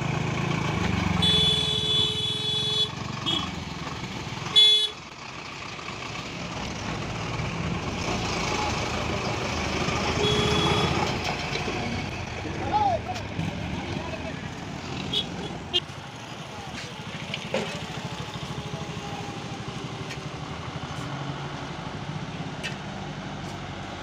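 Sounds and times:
bus engine running: 0.0 - 24.0
vehicle horns honking: 1.2 - 3.6, 4.5 - 5.0, 10.1 - 11.2, 15.1 - 15.9.

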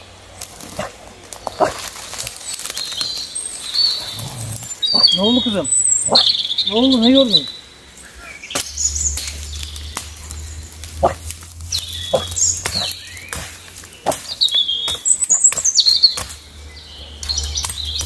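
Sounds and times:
dry twigs cracking: 0.0 - 18.0
small birds chirping: 0.0 - 18.0
low steady rumble: 7.0 - 14.3.

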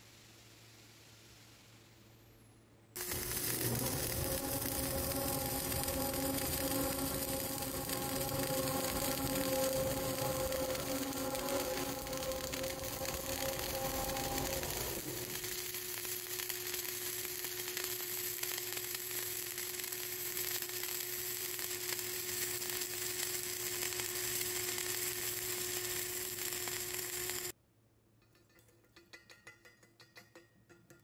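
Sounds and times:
welding arc sizzling crackle: 3.0 - 27.6.

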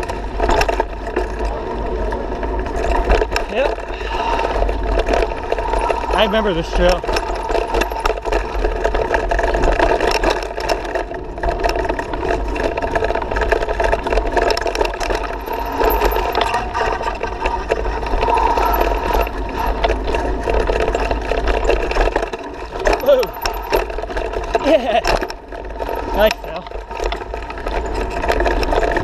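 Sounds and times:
bike clattering over bumps: 0.0 - 29.0
tyres on dirt: 0.0 - 29.0
wind rumble on microphone: 0.0 - 29.0.

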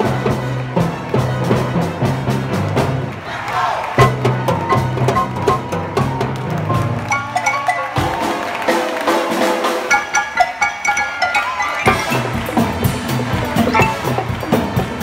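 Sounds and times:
live band playing upbeat music: 4.0 - 15.0
piano: 4.0 - 15.0
sharp percussive knocks: 9.8 - 15.0.

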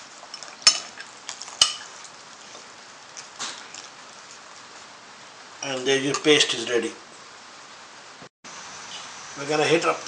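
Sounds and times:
spoon clinking against bowl: 1.6 - 1.9.

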